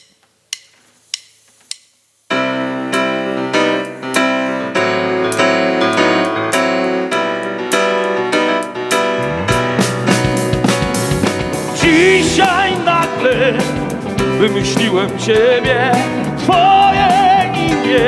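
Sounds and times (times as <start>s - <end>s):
electric piano chords: 2.3s - 18.0s.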